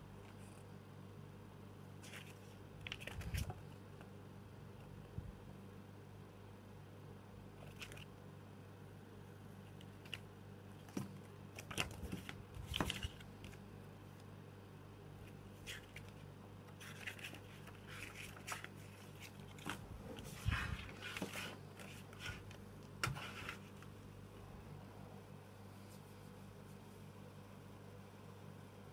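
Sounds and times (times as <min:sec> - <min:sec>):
paper pages rustling: 0:02.0 - 0:03.8, 0:07.6 - 0:08.1, 0:09.7 - 0:14.2, 0:15.2 - 0:24.0.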